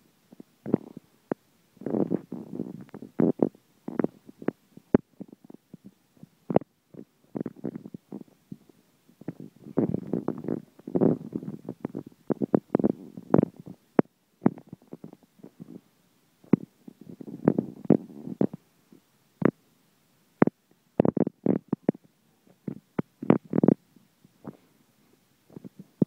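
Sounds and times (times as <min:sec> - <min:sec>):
cat purring: 0:00.3 - 0:19.6, 0:20.4 - 0:24.7, 0:25.5 - 0:26.0.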